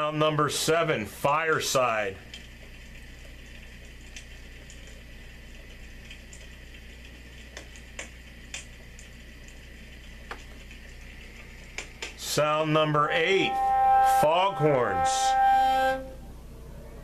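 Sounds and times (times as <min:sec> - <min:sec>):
crackling fire: 0:00.0 - 0:12.9
steady low hum: 0:00.0 - 0:17.0.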